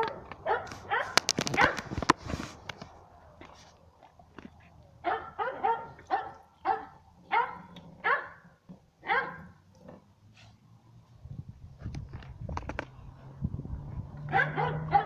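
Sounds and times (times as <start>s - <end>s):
dog barking: 0.0s - 1.8s, 5.0s - 8.4s, 9.0s - 9.6s, 14.3s - 15.0s.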